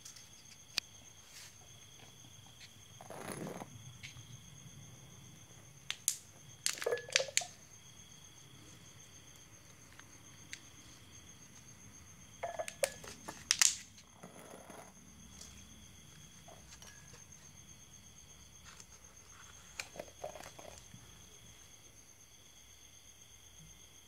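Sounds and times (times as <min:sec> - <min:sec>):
plastic cups clicking on table: 0:05.9 - 0:07.6.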